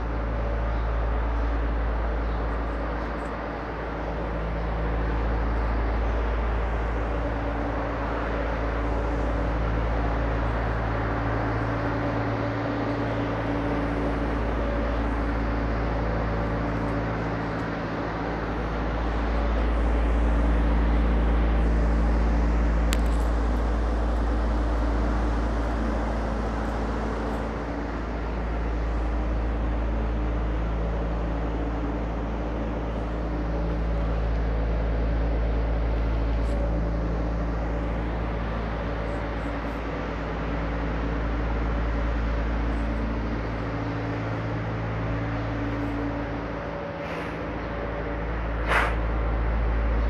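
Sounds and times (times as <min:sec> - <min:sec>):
low rumble: 0:00.0 - 0:50.0
steady mechanical hum: 0:00.0 - 0:50.0
sharp click: 0:48.6 - 0:49.1.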